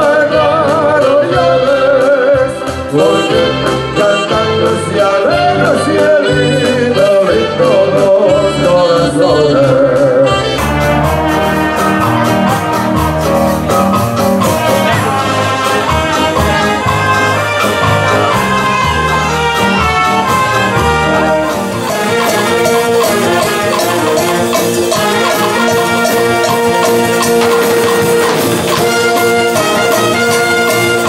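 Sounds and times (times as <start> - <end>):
wind band playing: 0.0 - 31.0
tambourine shaking: 21.5 - 31.0.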